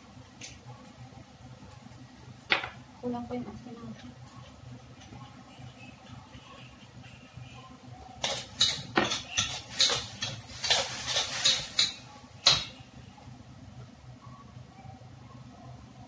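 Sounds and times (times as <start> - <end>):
metal spatula scraping a wok: 8.3 - 12.0.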